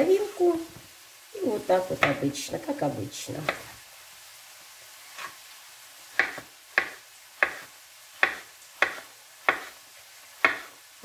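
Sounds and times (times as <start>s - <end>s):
knife chopping on wooden board: 6.2s - 9.8s, 10.4s - 10.7s.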